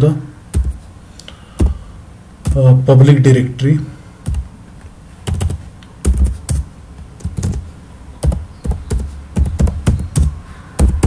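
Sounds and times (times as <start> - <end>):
keyboard typing: 0.5 - 0.8, 4.2 - 4.5, 5.2 - 11.0.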